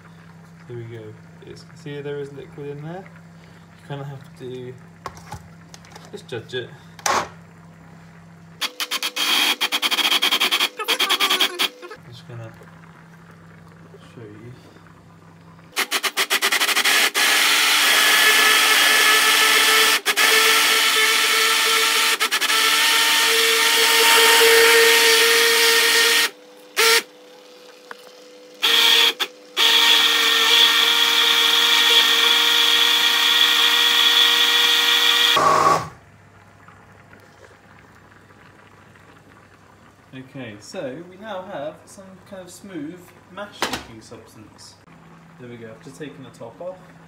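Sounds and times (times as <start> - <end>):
blender motor whining: 8.6 - 12.0, 15.8 - 27.1, 28.6 - 36.0.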